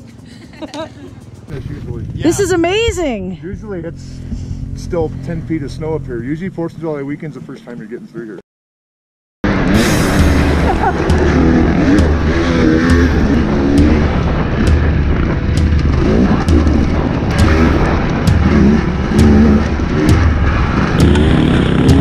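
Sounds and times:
dirt bike engine revving: 9.4s - 22.0s.

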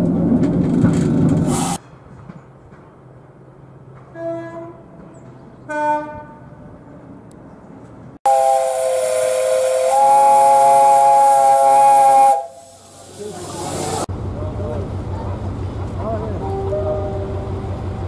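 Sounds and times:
escaping steam hiss: 1.5s - 1.8s, 8.3s - 14.1s
steam locomotive whistle: 8.2s - 12.8s.

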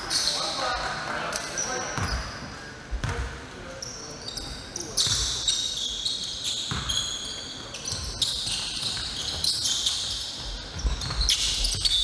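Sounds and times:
sneakers squeaking on floor: 0.0s - 12.0s
basketball dribbling thuds: 10.4s - 12.0s.

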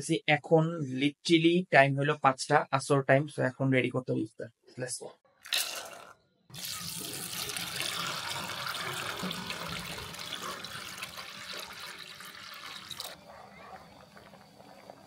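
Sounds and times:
water pouring into metal bowl: 5.4s - 13.2s.

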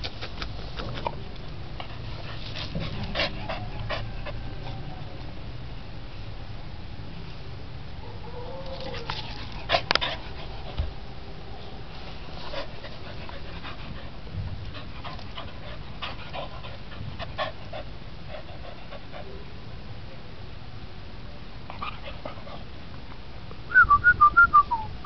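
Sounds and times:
steady low rumble: 9.2s - 25.0s.

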